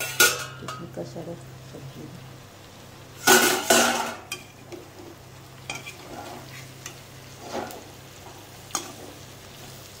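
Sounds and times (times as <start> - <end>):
vegetables sizzling: 0.0 - 10.0
spatula scraping a pan: 5.7 - 9.2.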